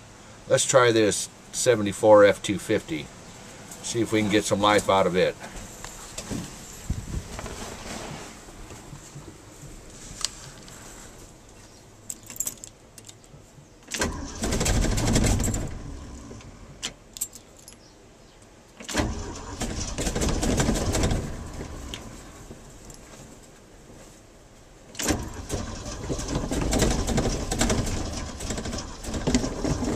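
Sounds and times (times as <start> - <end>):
keys jangling in ignition: 12.1 - 13.3, 17.1 - 17.9
engine cranking on starter: 13.9 - 16.5, 18.8 - 22.4, 24.9 - 29.9.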